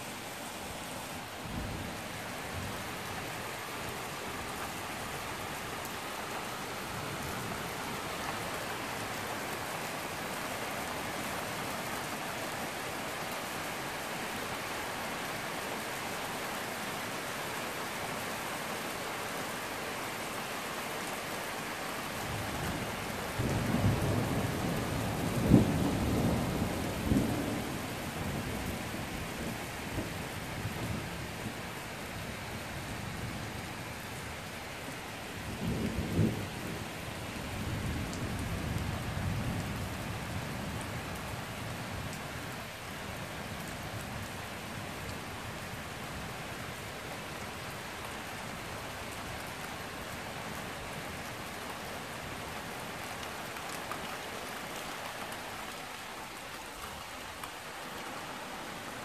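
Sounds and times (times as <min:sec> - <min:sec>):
rain hissing: 0:00.0 - 0:19.2.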